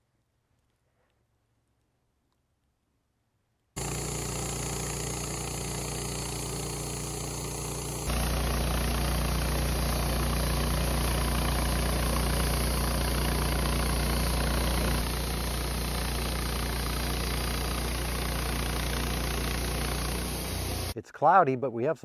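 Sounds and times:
sawmill motor hum: 0:03.8 - 0:21.0.

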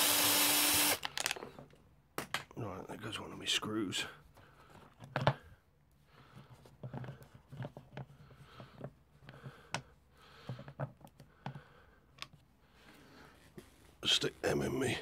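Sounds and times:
screws handled in fingers: 0:00.9 - 0:01.6.

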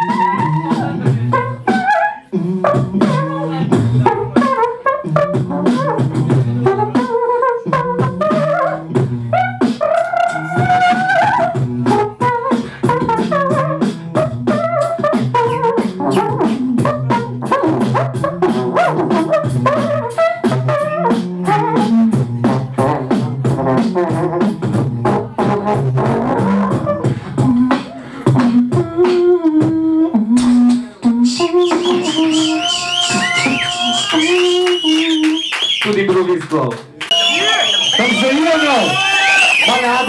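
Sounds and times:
beatboxing drum sounds: 0:00.0 - 0:40.0
person humming and singing: 0:26.4 - 0:35.4.

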